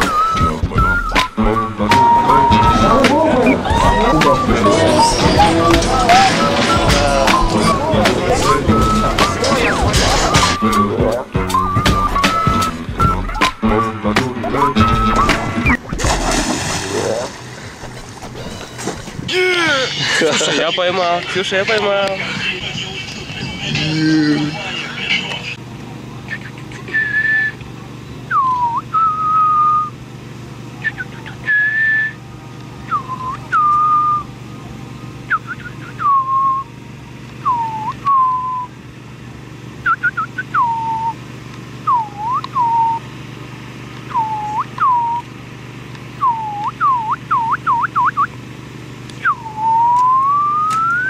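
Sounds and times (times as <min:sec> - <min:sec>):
person whistling: 0:00.0 - 0:15.8, 0:26.3 - 0:27.6, 0:28.3 - 0:30.0, 0:30.8 - 0:32.2, 0:32.9 - 0:34.3, 0:35.3 - 0:36.7, 0:37.4 - 0:38.7, 0:39.8 - 0:41.2, 0:41.8 - 0:43.0, 0:44.1 - 0:45.3, 0:46.2 - 0:48.3, 0:49.2 - 0:51.0.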